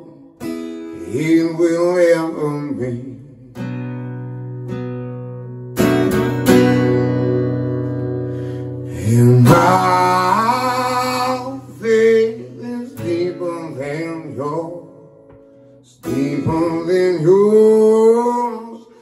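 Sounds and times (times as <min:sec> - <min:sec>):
man singing: 0:00.0 - 0:03.7, 0:08.8 - 0:15.2, 0:15.8 - 0:19.0
acoustic guitar strumming: 0:00.0 - 0:19.0.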